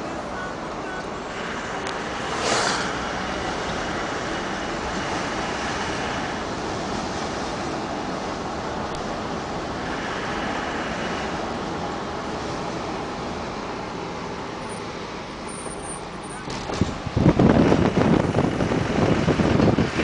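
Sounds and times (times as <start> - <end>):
wind and road noise: 0.0 - 20.0
vehicle passing with whoosh: 1.4 - 14.2.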